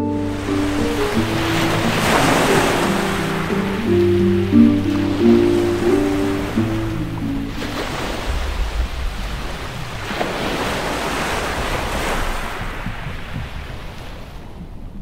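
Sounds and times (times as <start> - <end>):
ocean surf rushing: 0.0 - 14.8.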